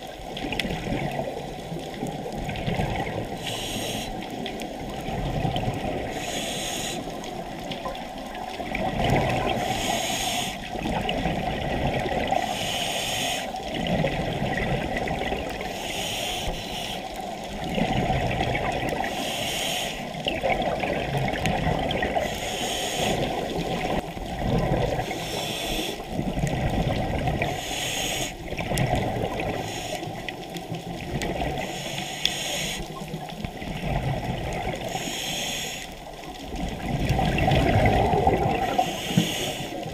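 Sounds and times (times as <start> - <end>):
exhaled air bubbling: 0.0 - 19.2, 19.9 - 39.9
regulator inhalation hiss: 3.4 - 4.3, 6.1 - 7.2, 9.6 - 10.7, 12.4 - 13.6, 15.6 - 17.2, 19.0 - 20.2, 22.2 - 23.4, 25.0 - 26.0, 27.4 - 28.4, 29.5 - 30.2, 31.6 - 33.0, 34.8 - 36.0, 38.6 - 39.9.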